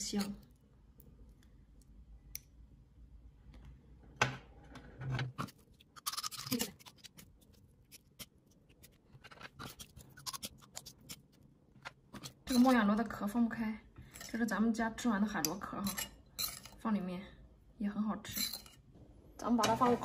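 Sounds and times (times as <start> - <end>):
metal spoon scraping shell: 5.9 - 7.2, 15.8 - 16.8.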